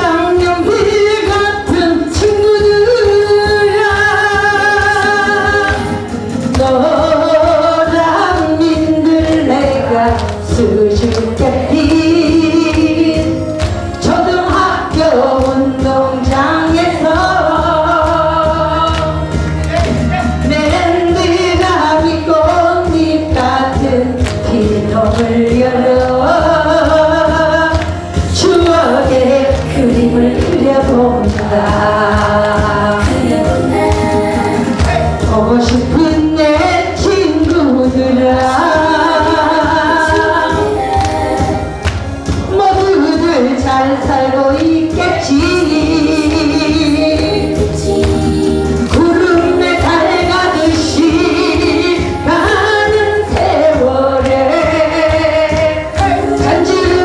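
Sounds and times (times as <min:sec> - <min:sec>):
woman singing: 0:00.0 - 0:19.6, 0:20.3 - 0:57.0
backing track music: 0:00.0 - 0:57.0
group singing along: 0:14.0 - 0:19.7, 0:20.4 - 0:57.0.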